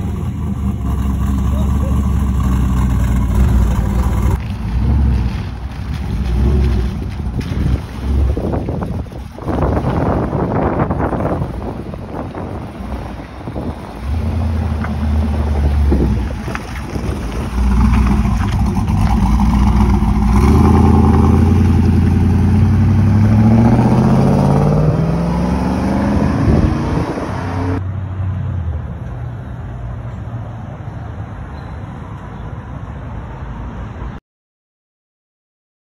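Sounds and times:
truck engine revving and accelerating: 0.0 - 28.6.

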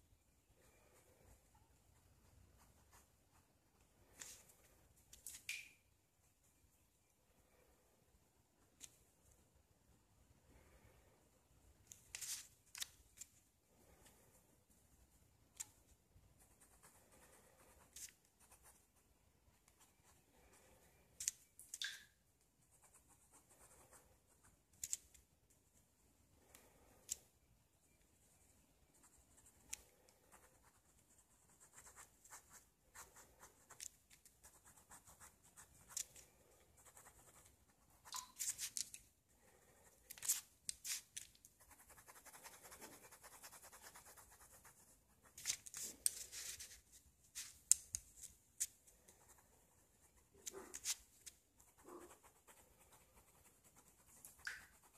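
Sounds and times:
ballpoint pen scratching on paper: 36.8 - 46.8, 49.1 - 54.9
faucet dripping: 38.1 - 38.4.

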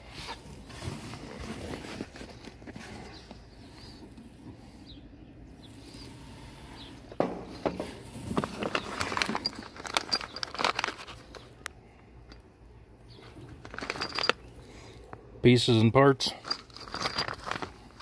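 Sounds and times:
metal parts clinking: 8.4 - 11.6, 13.2 - 14.5, 16.2 - 18.0
plastic bag crinkling: 8.4 - 11.6, 13.4 - 14.4, 16.6 - 18.0.

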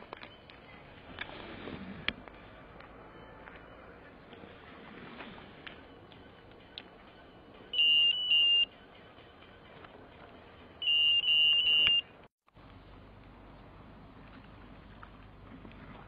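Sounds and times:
bite alarm beeps: 7.7 - 8.8, 10.8 - 12.1.

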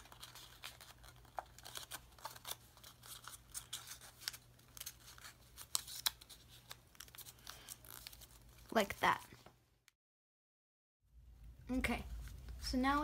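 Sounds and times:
paper crackling and crinkling: 0.0 - 9.2.

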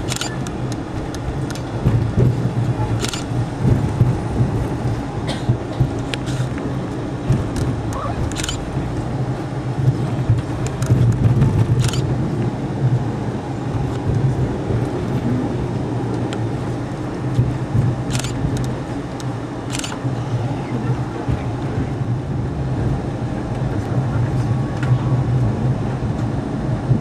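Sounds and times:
train rumbling along track: 0.0 - 27.0
sharp clicks: 0.1 - 1.6.

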